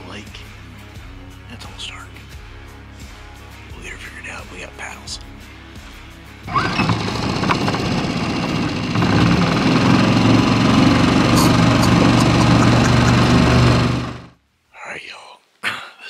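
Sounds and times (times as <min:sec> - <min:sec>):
outboard motor running: 0:06.5 - 0:14.4.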